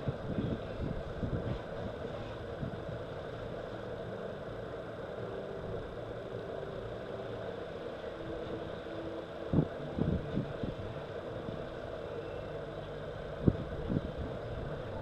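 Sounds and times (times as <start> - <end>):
engine hum: 0.0 - 15.0
faint held tones: 12.0 - 13.4.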